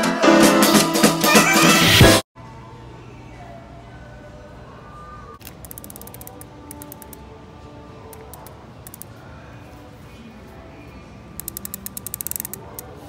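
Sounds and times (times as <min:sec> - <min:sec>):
background music: 0:00.0 - 0:02.2
fishing reel clicking: 0:05.4 - 0:07.2, 0:08.2 - 0:09.1, 0:11.4 - 0:12.9.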